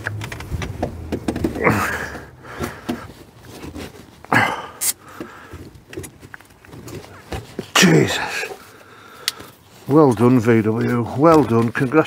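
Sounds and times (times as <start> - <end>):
metal knocks and clunks: 0.0 - 3.1.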